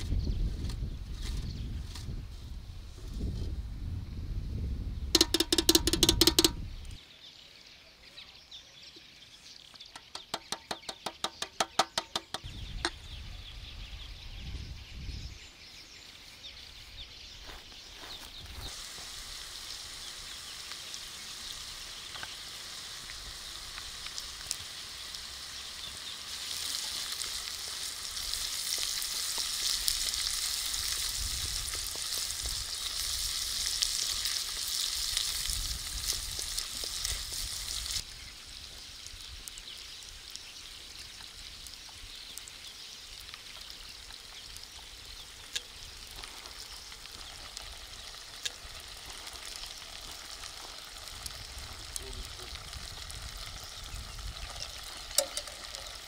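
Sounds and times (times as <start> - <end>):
minced meat sizzling in a pan: 15.6 - 56.0.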